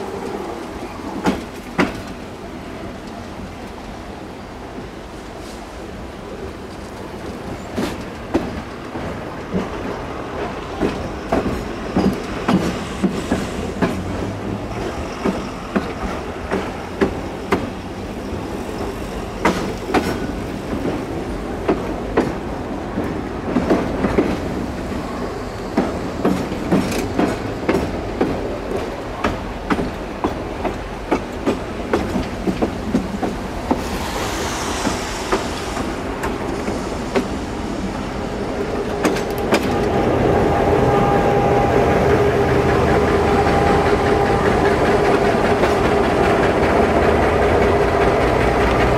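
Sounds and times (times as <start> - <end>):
train wheels clattering over rails: 0.0 - 48.9
high hiss: 33.4 - 41.3.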